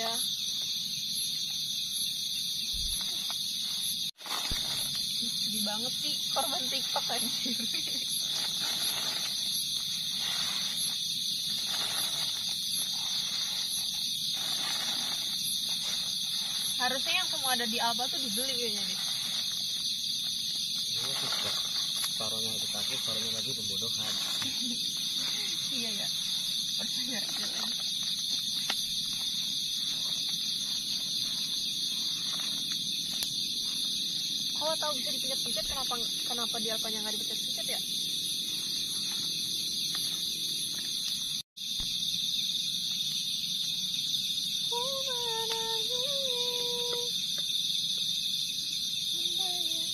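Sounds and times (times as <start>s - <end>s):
chorus of night insects: 0.0s - 49.9s
insect chirping in even pulse: 0.0s - 49.9s
soft rustle: 7.9s - 16.9s, 18.3s - 32.8s.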